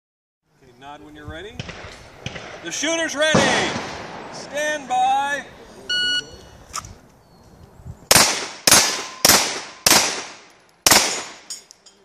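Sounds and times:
handgun shots with echo: 8.1s - 11.5s.

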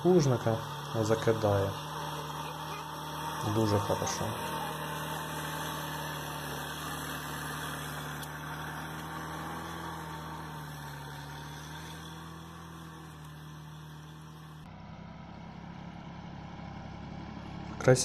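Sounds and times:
quieter tractor engine: 0.0s - 18.0s
tractor engine under load: 0.0s - 18.0s.

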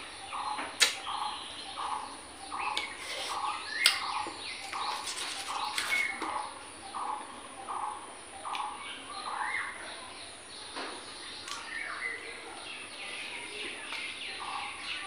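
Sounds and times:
bird calling: 0.0s - 9.8s
crisp fruit being chewed: 2.7s - 6.4s.

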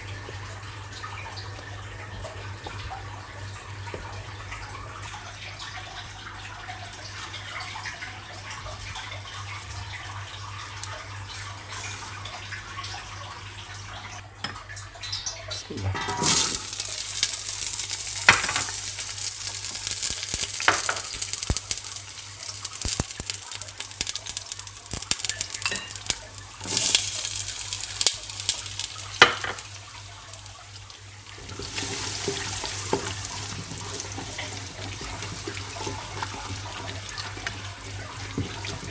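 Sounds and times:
food sizzling in a pan: 15.9s - 38.9s.

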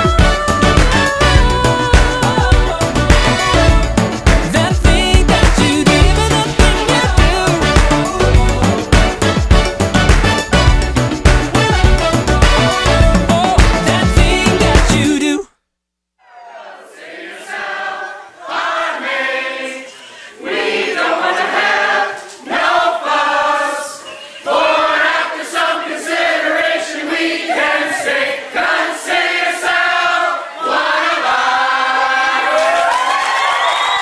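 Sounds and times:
group singing unaccompanied: 0.0s - 10.6s, 11.6s - 15.4s, 16.3s - 32.5s
dance music: 0.0s - 15.5s.

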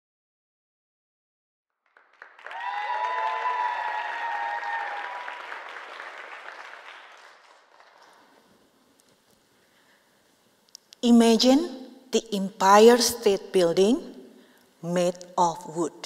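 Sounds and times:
audience applauding: 1.8s - 8.6s
high cheers: 2.2s - 7.4s.

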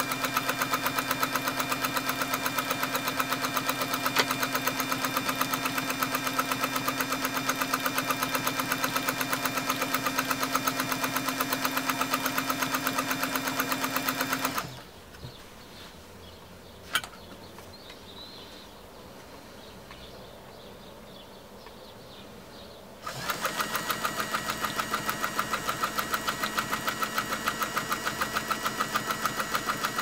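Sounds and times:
sewing machine stitching: 0.0s - 14.8s, 23.0s - 30.0s.

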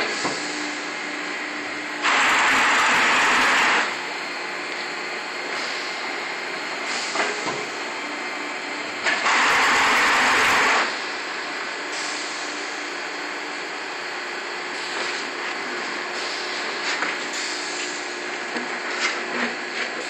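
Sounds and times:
die-cutting press hissing: 1.9s - 4.1s, 9.0s - 11.1s.

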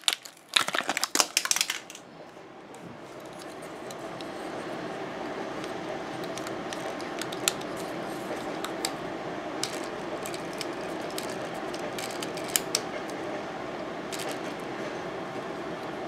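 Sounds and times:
steady background hiss: 1.3s - 16.0s.

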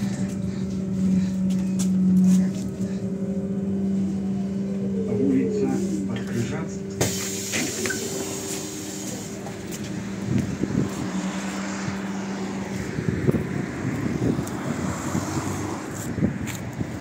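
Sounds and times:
street traffic: 0.0s - 17.0s
trolleybus equipment humming: 0.0s - 17.0s
wind on microphone: 9.5s - 17.0s.

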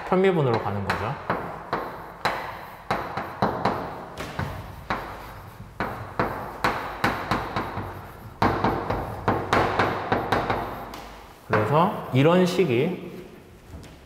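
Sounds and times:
chalk tapping on a blackboard: 0.3s - 11.9s.

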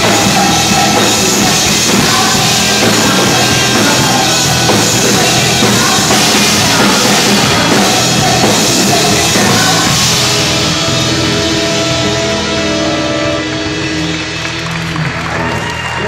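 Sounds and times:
live rock band playing: 0.0s - 16.0s
wind and brass band: 10.6s - 14.1s.

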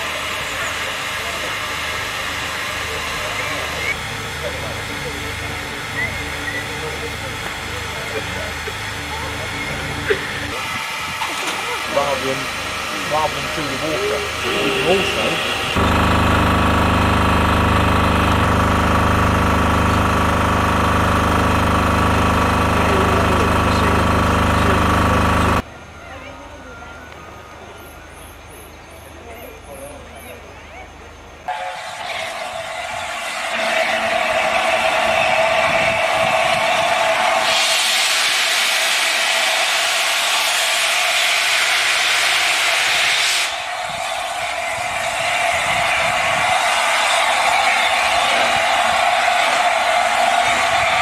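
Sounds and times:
steam locomotive hissing steam: 0.0s - 25.6s, 31.5s - 51.0s
engine idling: 0.0s - 25.7s.

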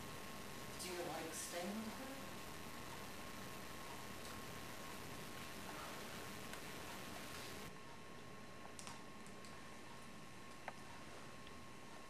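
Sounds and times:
steady hiss: 0.0s - 7.8s.

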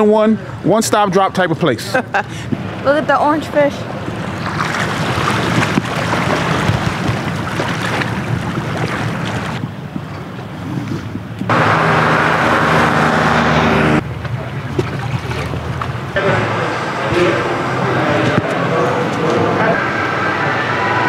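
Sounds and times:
outdoor ambience: 1.9s - 21.0s
wind noise on microphone: 4.0s - 11.7s.

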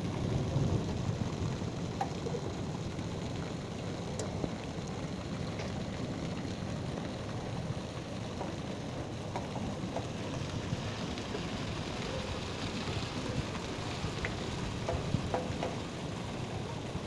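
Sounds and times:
hailstones ticking: 0.0s - 17.0s
heavy rain hissing: 0.0s - 17.0s
water pouring off roof: 0.0s - 17.0s.

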